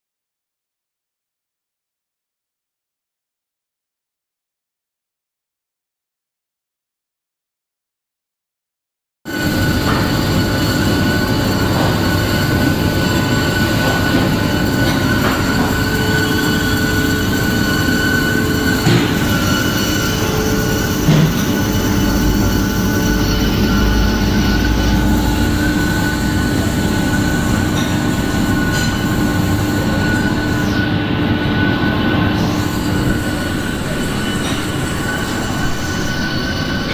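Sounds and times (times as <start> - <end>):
bandsaw cutting metal: 9.3 - 30.8.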